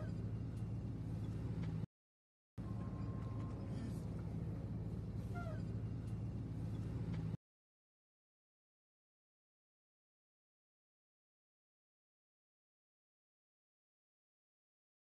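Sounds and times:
car engine and road noise: 0.0 - 1.9, 2.6 - 7.4
falling squeak: 5.3 - 5.7.

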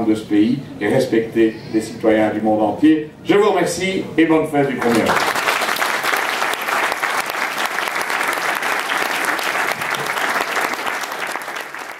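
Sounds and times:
audience applauding: 4.8 - 11.9.

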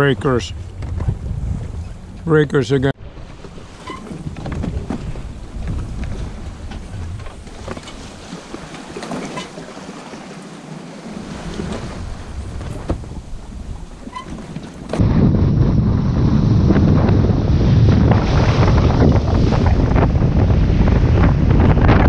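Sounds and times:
waves splashing against hull: 0.0 - 22.0
wind buffeting microphone: 0.0 - 22.0
faint knocks of boat gear: 0.6 - 2.3, 3.1 - 10.0, 11.5 - 15.0.

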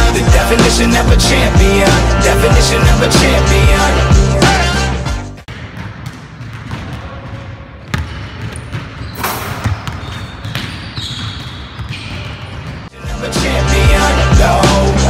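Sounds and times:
basketball bouncing on wooden floor: 5.5 - 12.9.

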